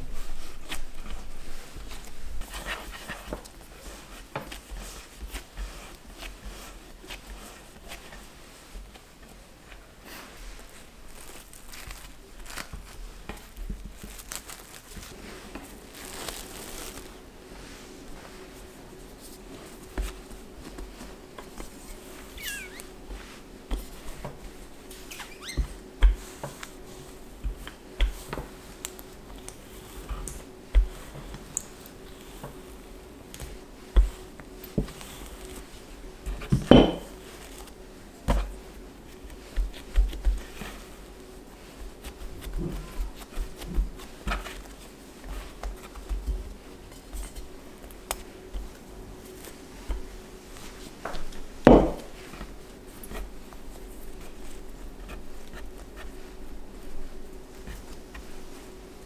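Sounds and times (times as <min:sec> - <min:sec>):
hands kneading dough: 0:00.0 - 0:59.0
rolling pin rolling over dough: 0:00.0 - 0:59.0
thumps on wooden board: 0:51.7 - 0:52.1.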